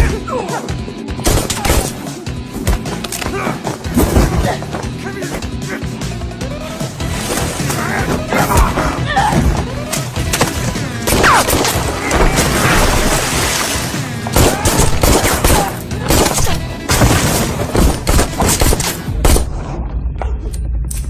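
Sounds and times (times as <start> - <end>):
dramatic background music: 0.0 - 21.0
fight hits and thuds: 14.3 - 19.5.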